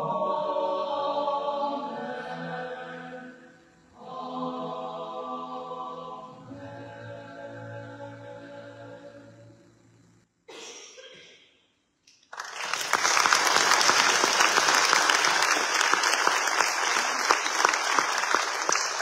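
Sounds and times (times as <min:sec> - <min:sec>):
choir holding a chord: 0:00.0 - 0:09.8
audience applause: 0:12.3 - 0:19.0.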